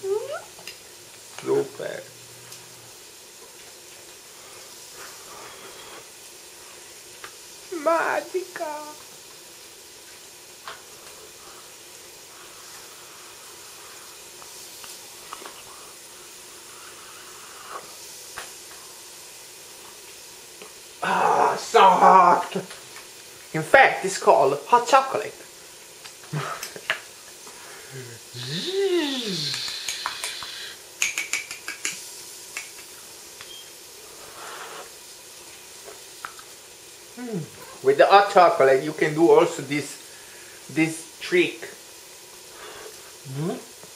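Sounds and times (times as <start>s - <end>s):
steady background hiss: 0.0s - 43.9s
person blowing on spoon: 28.0s - 30.8s.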